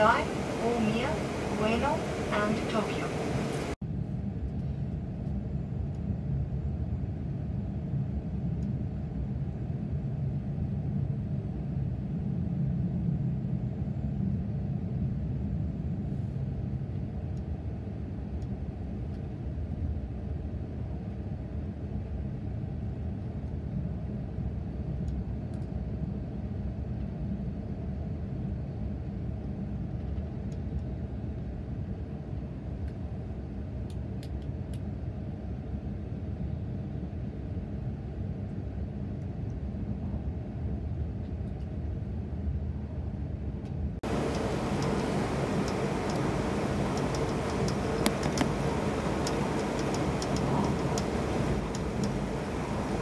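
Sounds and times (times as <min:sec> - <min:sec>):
train wheels rumbling on rails: 0:44.0 - 0:53.0.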